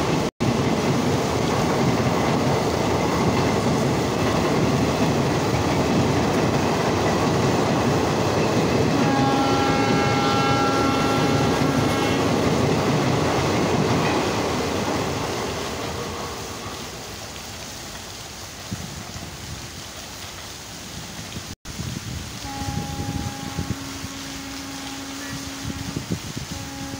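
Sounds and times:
train wheels rumbling on rails: 0.0s - 26.9s
train horn: 8.8s - 12.5s, 22.4s - 26.9s.

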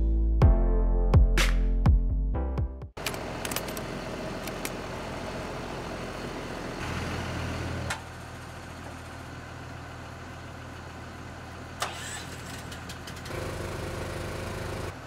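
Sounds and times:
engine idling: 3.0s - 15.0s.

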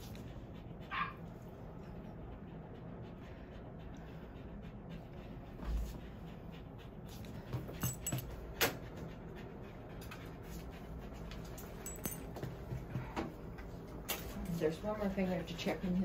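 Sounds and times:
dog tags jingling: 11.6s - 12.4s.

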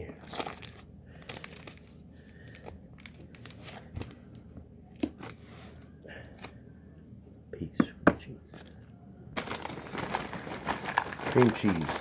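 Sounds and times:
wrapper crinkling: 0.2s - 1.9s, 9.4s - 12.0s.

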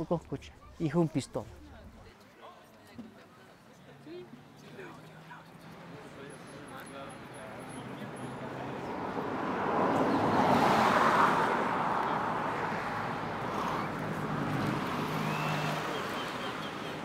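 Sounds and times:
vehicle passing by: 5.1s - 17.0s.

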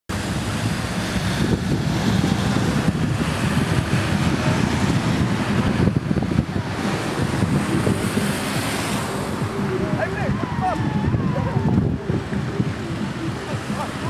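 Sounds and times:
wind buffeting microphone: 0.1s - 14.0s.

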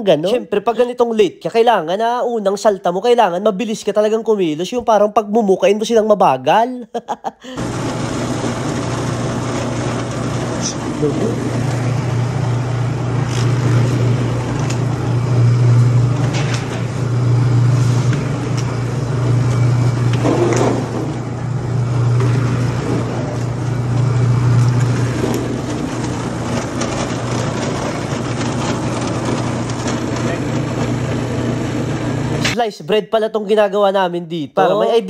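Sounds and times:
dough-moulding machine humming: 7.4s - 32.6s.

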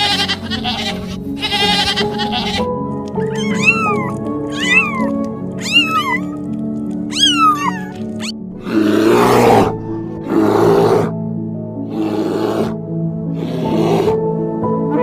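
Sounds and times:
kittens mewing: 0.0s - 11.1s
background music: 0.0s - 15.0s
kitten harsh growls: 3.4s - 6.4s, 7.1s - 11.1s.

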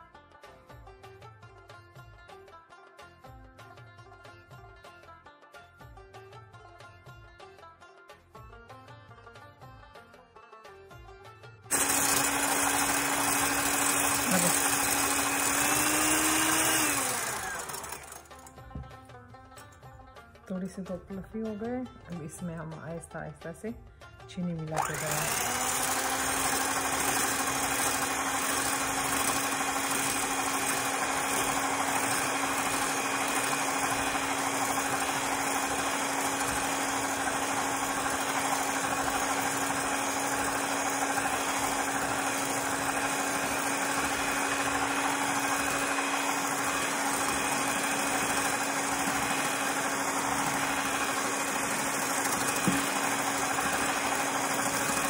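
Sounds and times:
electric hand mixer whirring: 11.7s - 19.0s, 24.7s - 55.0s.

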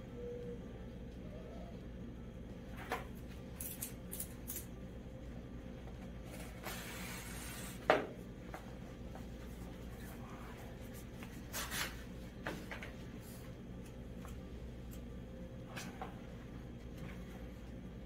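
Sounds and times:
steady low hum: 0.0s - 18.0s
film peeling hiss: 6.3s - 7.9s.

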